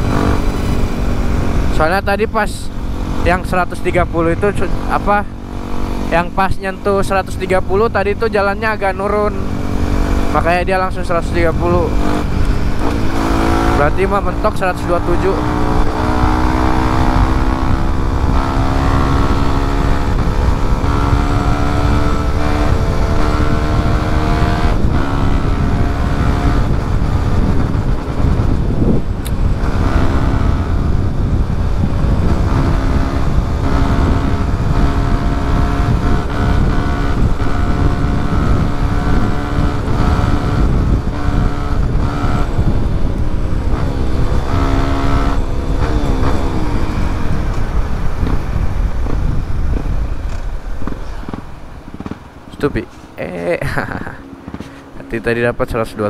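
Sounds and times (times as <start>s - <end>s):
motorcycle engine running: 0.0s - 52.4s
wind rush: 0.0s - 56.0s.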